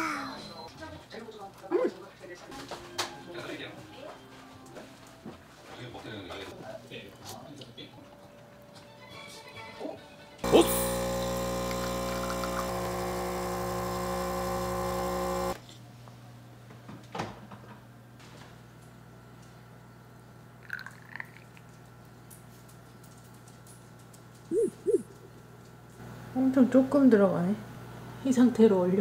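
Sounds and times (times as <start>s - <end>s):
espresso machine pump buzzing: 10.4s - 15.6s.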